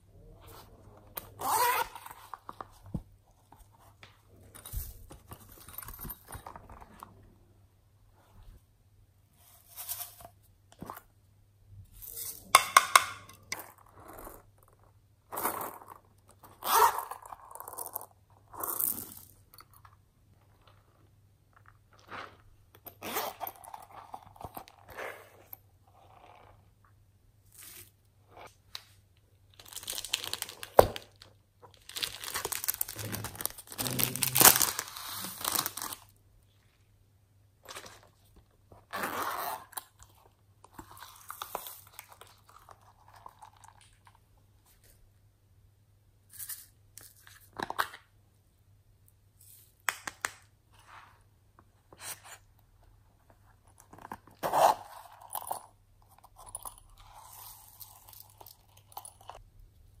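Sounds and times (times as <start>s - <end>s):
plastic pouches rustling: 29.5s - 36.1s.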